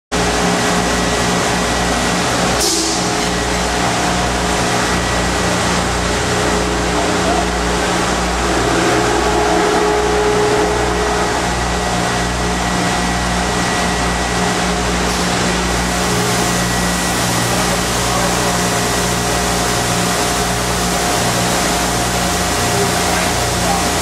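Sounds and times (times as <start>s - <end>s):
low hum: 0.2s - 18.2s.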